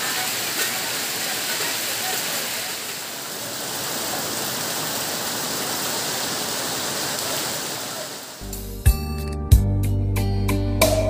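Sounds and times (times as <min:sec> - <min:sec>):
heavy rain on trees and roof: 0:00.0 - 0:08.4
water running off eave: 0:00.0 - 0:08.4.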